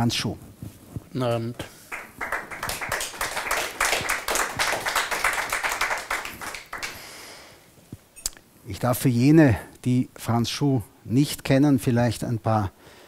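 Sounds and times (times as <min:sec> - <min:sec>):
audience applauding: 0:01.8 - 0:07.0.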